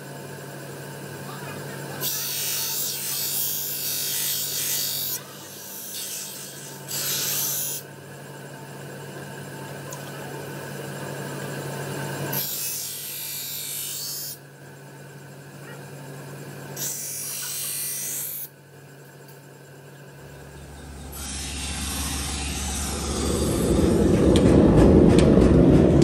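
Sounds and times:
grinding wheel motor humming: 0:00.0 - 0:26.0
knife blade grinding hiss: 0:02.0 - 0:07.8, 0:12.3 - 0:14.4, 0:16.8 - 0:18.5.

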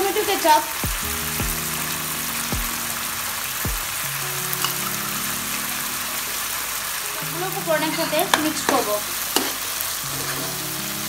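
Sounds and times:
food sizzling in hot oil: 0:00.0 - 0:11.0.

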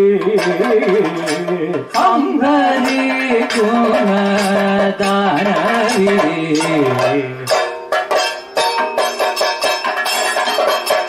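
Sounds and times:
person singing ornamented line: 0:00.0 - 0:07.6
drumming: 0:00.0 - 0:11.0.

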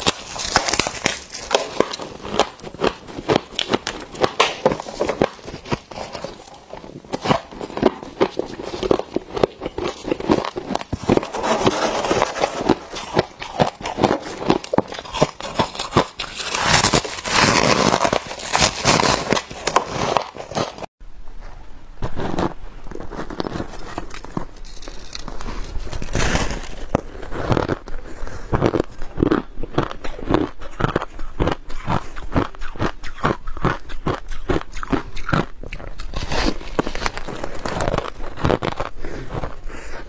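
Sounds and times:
frost crunching being chewed: 0:00.0 - 0:20.9, 0:22.4 - 0:40.0
hands scraping frost: 0:00.0 - 0:20.9, 0:22.1 - 0:28.8.

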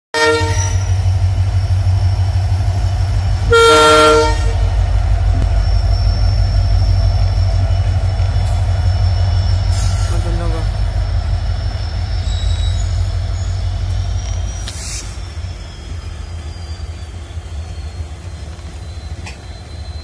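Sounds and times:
locomotive air horn: 0:00.2 - 0:01.0, 0:03.4 - 0:04.8
diesel locomotive engine rumble: 0:00.2 - 0:20.0.

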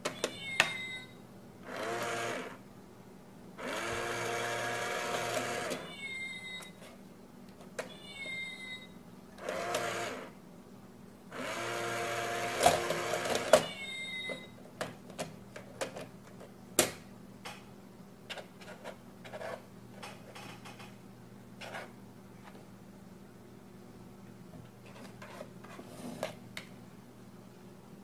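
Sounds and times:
small electric motor whirring: 0:03.6 - 0:05.8.

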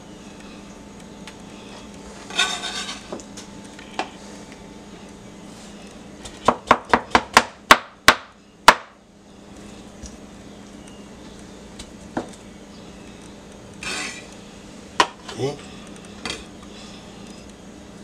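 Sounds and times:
knife scraping: 0:02.3 - 0:03.2, 0:13.8 - 0:14.3.

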